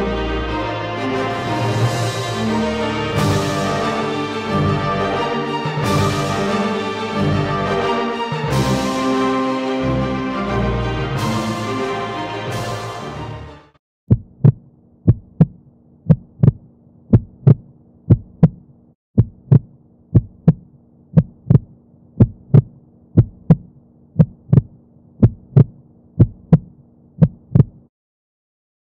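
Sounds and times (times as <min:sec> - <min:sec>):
heartbeat thumps: 0:14.1 - 0:18.6, 0:19.2 - 0:27.9.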